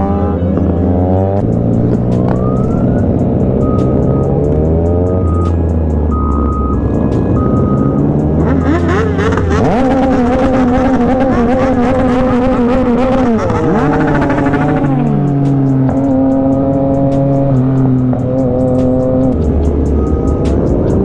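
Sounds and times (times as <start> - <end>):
motorcycle engine revving: 0.0 - 21.0
music with steady beat: 1.4 - 9.6, 13.7 - 21.0.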